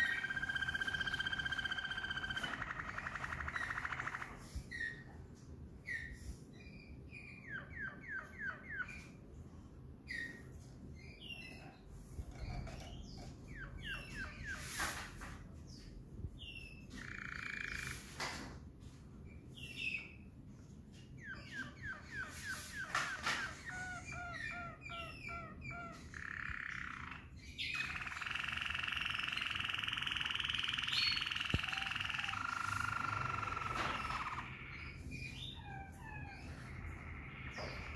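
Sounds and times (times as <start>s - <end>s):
canary singing: 0.0s - 5.1s, 11.0s - 14.7s, 16.4s - 18.0s, 21.2s - 37.9s.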